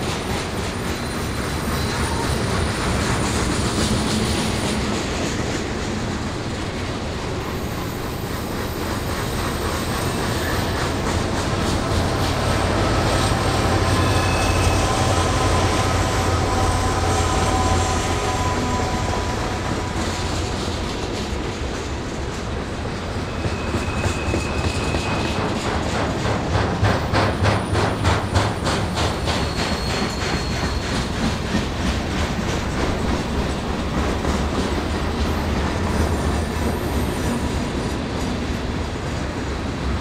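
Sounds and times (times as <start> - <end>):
wheels clacking over rail joints: 0.0 - 39.5
freight train rumbling past: 0.0 - 40.0
high-pitched wheel squeals: 7.5 - 11.0, 12.7 - 20.0, 23.2 - 25.6, 29.1 - 31.2.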